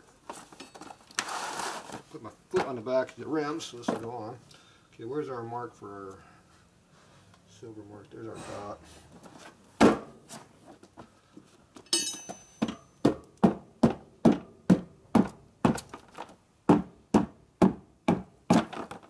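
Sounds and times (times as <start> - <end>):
ringing metal clink: 11.8 - 13.0.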